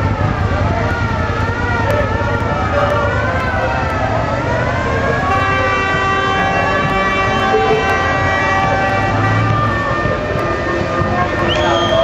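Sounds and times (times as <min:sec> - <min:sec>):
car engines running: 0:00.0 - 0:12.0
wavering siren-like tone: 0:04.6 - 0:10.7
car horn: 0:05.2 - 0:09.9.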